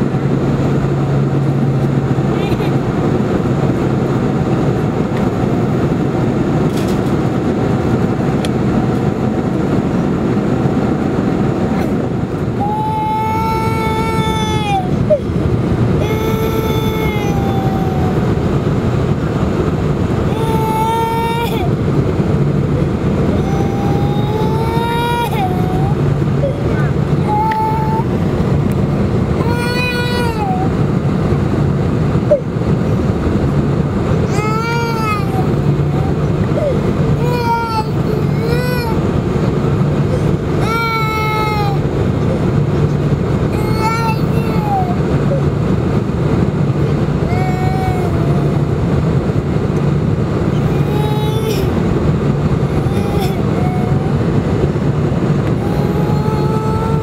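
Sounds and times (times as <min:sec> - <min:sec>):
airplane cabin engine drone: 0:00.0 - 0:57.0
child crying out: 0:12.5 - 0:15.4, 0:16.0 - 0:18.4, 0:20.2 - 0:21.8, 0:23.2 - 0:28.2, 0:29.4 - 0:30.8, 0:34.2 - 0:39.1, 0:40.1 - 0:41.9, 0:43.5 - 0:45.5, 0:47.2 - 0:48.7, 0:50.5 - 0:51.9, 0:52.6 - 0:54.4, 0:55.5 - 0:57.0.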